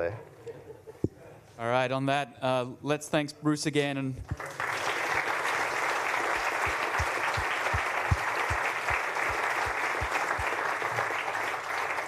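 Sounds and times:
audience applauding: 0:04.3 - 0:12.0.

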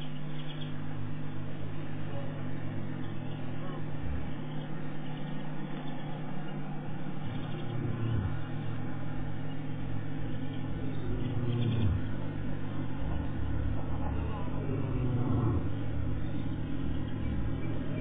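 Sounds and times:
vehicle engine running: 0:00.0 - 0:18.0.

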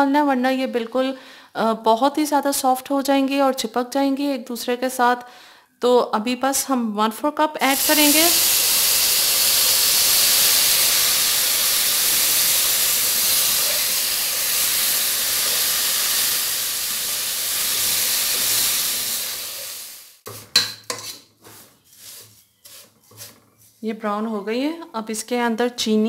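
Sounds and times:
water sizzling in hot pan: 0:07.6 - 0:20.2
spoon scraping pan: 0:20.3 - 0:23.8.

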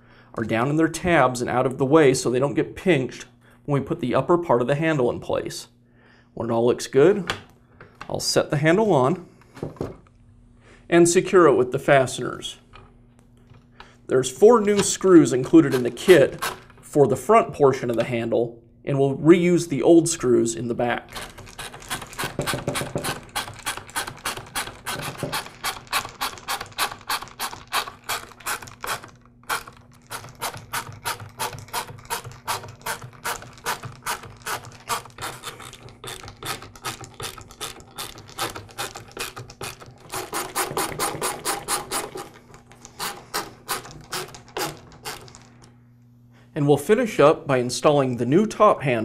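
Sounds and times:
screwdriver clicking: 0:21.2 - 0:45.5.

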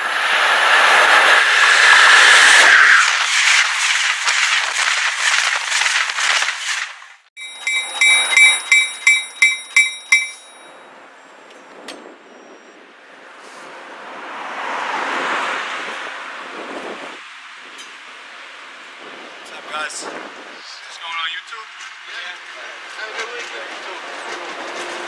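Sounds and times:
train wheel clatter: 0:07.4 - 0:10.7, 0:21.8 - 0:25.0
train bell ringing: 0:07.4 - 0:10.9.

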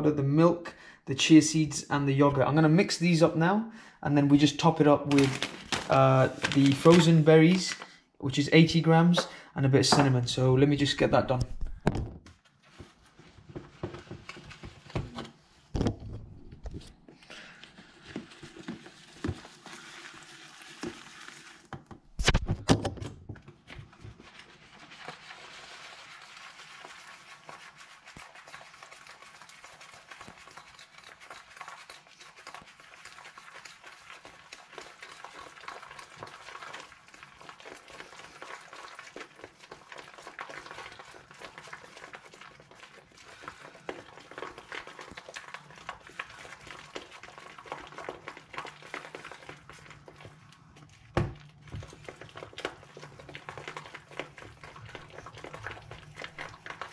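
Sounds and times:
stirring in a plastic tub: 0:04.2 - 0:07.9, 0:12.3 - 0:15.7, 0:16.6 - 0:21.7, 0:23.4 - 0:56.9
spoon knocking tub: 0:09.9 - 0:10.2.

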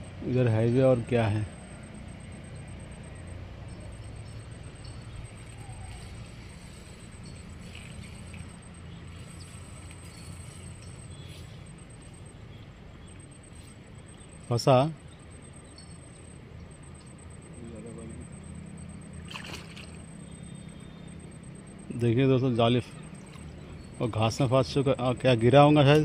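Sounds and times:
distant highway traffic rumble: 0:00.0 - 0:26.0
faint ticks: 0:01.8 - 0:12.1.

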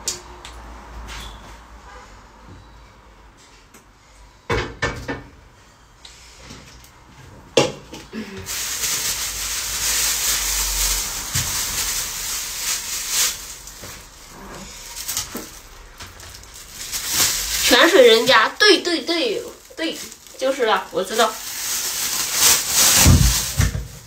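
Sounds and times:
steady rushing hiss: 0:08.5 - 0:15.8.

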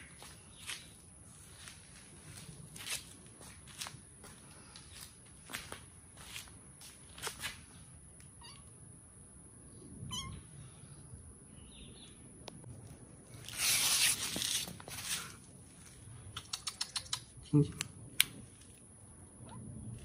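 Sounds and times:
scuffing rustle near microphone: 0:00.2 - 0:07.7, 0:13.4 - 0:16.0.

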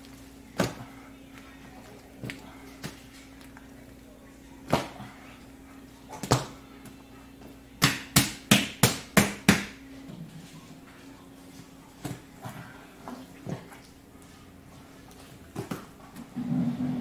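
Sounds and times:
low steady hum: 0:00.0 - 0:17.0
dough slapped on stone worktop: 0:07.8 - 0:09.8.

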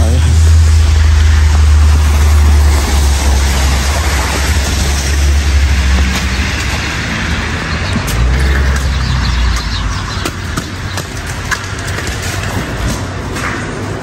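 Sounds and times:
cars passing on wet road: 0:00.0 - 0:14.0
heavy low rumble: 0:00.0 - 0:14.0.

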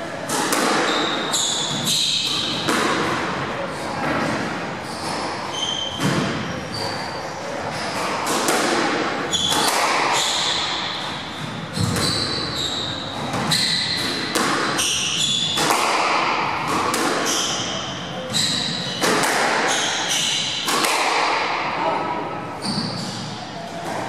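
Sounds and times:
squash ball smacks: 0:00.3 - 0:03.4, 0:07.9 - 0:11.0, 0:13.2 - 0:17.7, 0:19.0 - 0:21.7
shoes squeaking on wooden floor: 0:00.8 - 0:02.7, 0:04.8 - 0:08.2, 0:09.3 - 0:15.6, 0:17.2 - 0:20.6, 0:22.6 - 0:23.5.

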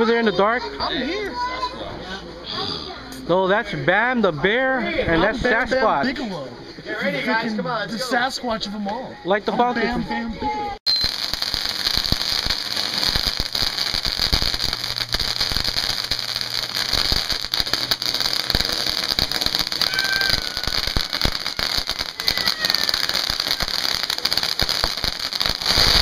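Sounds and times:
fireworks crackling and hissing: 0:10.8 - 0:26.0
sharp firework pops: 0:11.0 - 0:26.0.

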